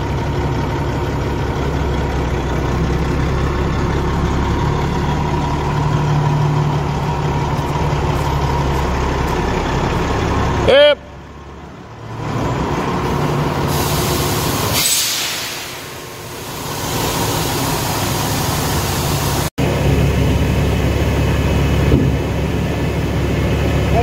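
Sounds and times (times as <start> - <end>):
truck diesel engine running: 0.0 - 24.0
air brakes hissing: 13.6 - 19.5.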